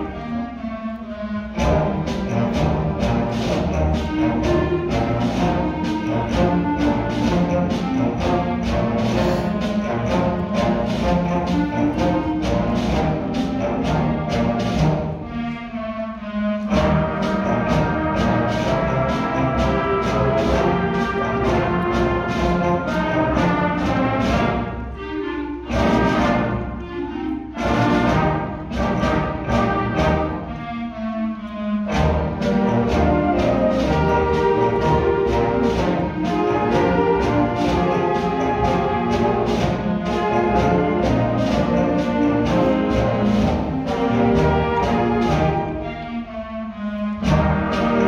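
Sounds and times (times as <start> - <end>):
brass and woodwind chords: 0.0 - 48.0
percussion beat: 1.6 - 15.2, 16.7 - 24.8, 31.9 - 45.9, 47.2 - 48.0.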